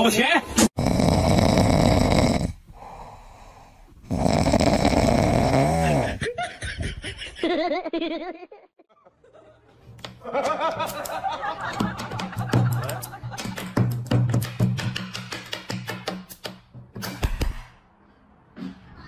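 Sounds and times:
puppy snoring: 0.8s - 3.4s, 4.0s - 6.2s
person laughing: 5.8s - 9.6s, 10.2s - 13.5s.

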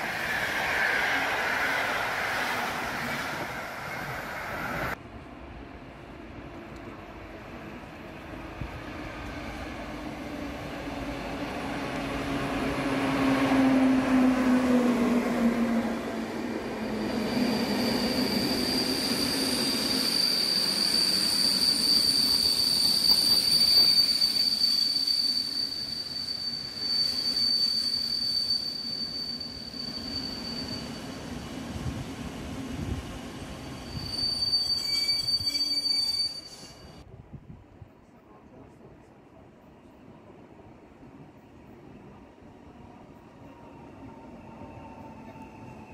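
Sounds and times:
train wheel squeal: 15.7s - 32.0s, 33.5s - 37.1s, 42.8s - 45.9s.

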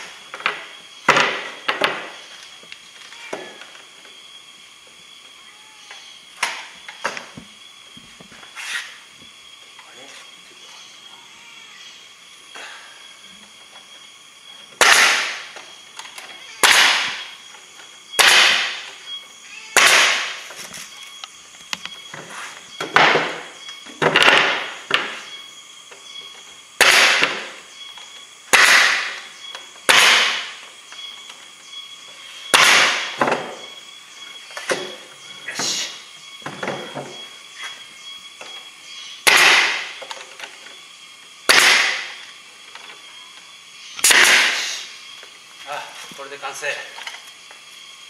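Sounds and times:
air hiss: 8.3s - 14.4s, 35.4s - 36.2s, 43.8s - 46.0s
nail gun shots into wood: 14.8s - 15.5s, 16.6s - 17.2s, 18.2s - 18.8s, 19.8s - 20.4s, 26.8s - 27.5s, 28.5s - 29.2s, 29.8s - 30.5s, 32.5s - 33.4s, 39.2s - 40.0s, 41.5s - 42.2s, 44.0s - 44.6s.

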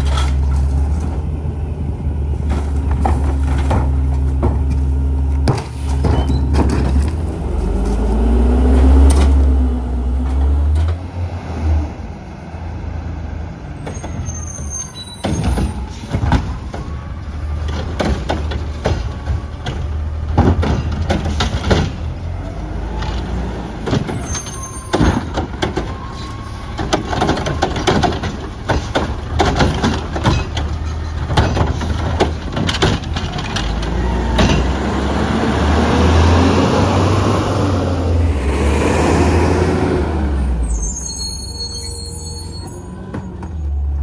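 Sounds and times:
garbage truck diesel engine: 0.0s - 44.0s
knocks and clatters: 2.4s - 7.3s, 17.6s - 22.1s, 26.8s - 34.8s
loud rushing noise: 35.1s - 40.7s.

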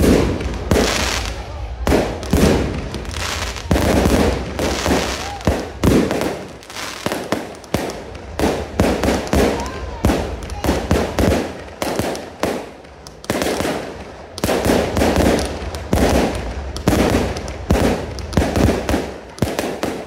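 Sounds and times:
fireworks bursting: 0.0s - 20.0s.

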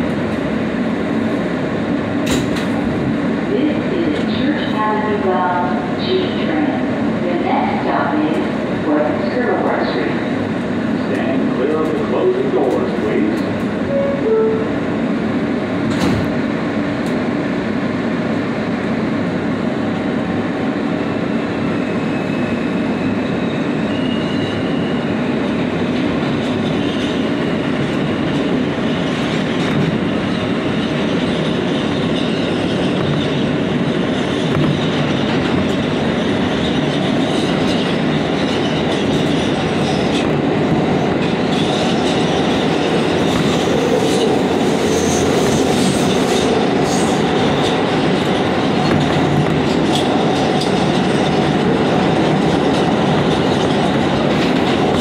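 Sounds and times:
train wheels rumbling on track: 0.0s - 55.0s
train wheels squealing: 21.7s - 25.3s, 43.8s - 47.2s.

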